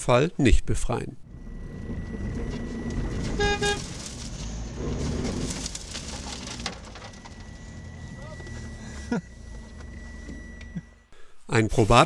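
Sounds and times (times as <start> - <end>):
truck engine revving: 1.2 - 11.1
brief pitched tone: 1.3 - 4.7, 6.8 - 11.1.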